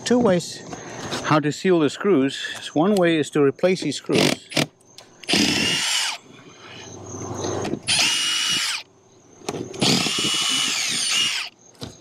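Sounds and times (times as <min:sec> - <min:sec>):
impact driver motor whine: 0:04.2 - 0:06.2, 0:07.6 - 0:08.9, 0:09.5 - 0:12.0.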